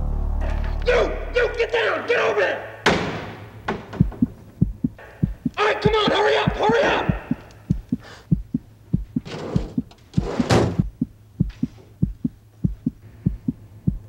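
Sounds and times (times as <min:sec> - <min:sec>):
low hum: 0:00.0 - 0:02.0, 0:02.6 - 0:05.6, 0:06.4 - 0:14.0
heartbeat thumps: 0:03.7 - 0:14.0.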